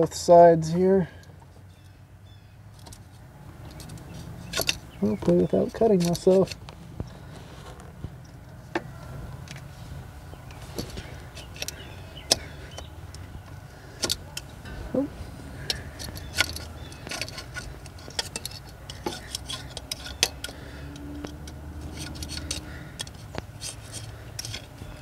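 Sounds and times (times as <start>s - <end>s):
low steady hum: 0.0s - 25.0s
razor blade scraping metal: 21.8s - 24.8s.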